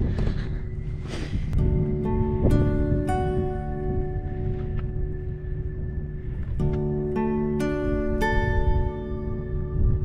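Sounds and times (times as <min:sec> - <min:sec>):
soft instrumental music: 0:00.0 - 0:10.0.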